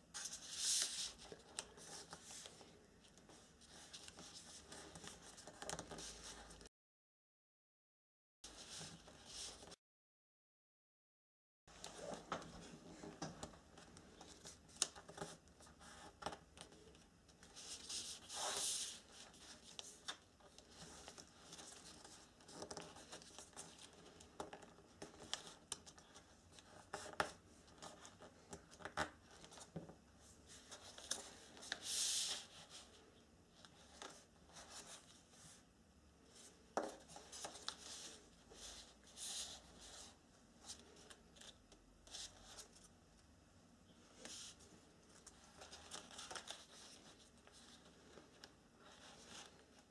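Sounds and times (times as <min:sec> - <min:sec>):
paper being folded and creased: 0:44.2 - 0:49.8.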